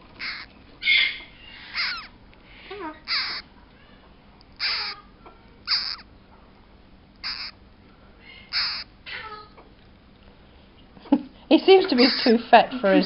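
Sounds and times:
parrot squawking: 0.1s - 3.5s, 4.6s - 6.1s, 7.2s - 7.6s, 8.2s - 9.6s, 11.9s - 12.3s.

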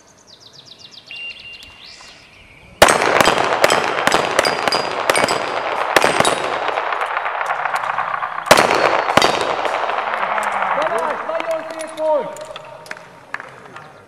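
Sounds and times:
rapid pistol fire: 2.8s - 11.8s
metallic pings of steel targets: 3.2s - 13.0s.

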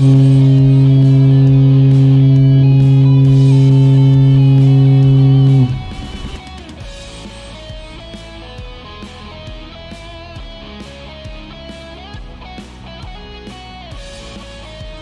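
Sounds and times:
ferry horn blast: 0.0s - 6.4s
guitar music: 0.0s - 15.0s.

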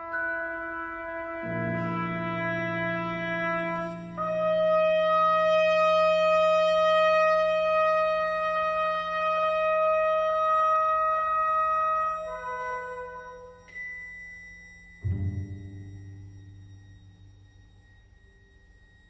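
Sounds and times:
low sustained note: 14.6s - 19.0s.

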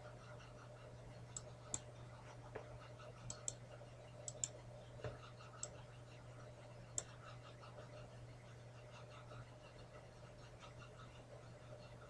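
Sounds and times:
faint steady hum: 0.0s - 12.0s
computer mouse clicks: 1.3s - 1.9s, 3.3s - 3.6s, 4.3s - 5.8s.

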